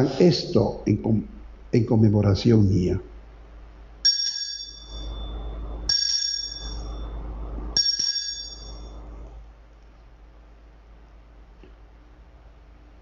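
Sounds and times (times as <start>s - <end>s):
altar bell ringing: 4.0s - 9.1s.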